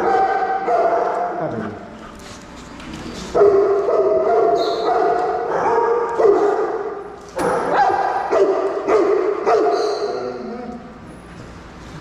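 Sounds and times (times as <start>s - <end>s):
dogs barking and yipping: 0.0s - 1.4s, 3.2s - 10.4s.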